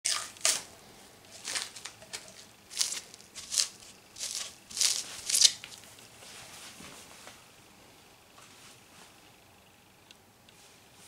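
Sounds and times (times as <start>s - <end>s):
plastic film crinkling and scraping: 1.3s - 5.9s.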